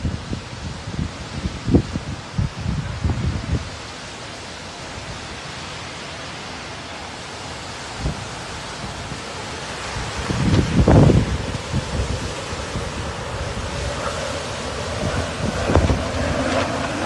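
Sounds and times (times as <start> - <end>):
wind buffet on microphone: 0.0 - 4.0, 7.9 - 17.0
storm wind: 0.0 - 17.0
surf: 2.4 - 17.0.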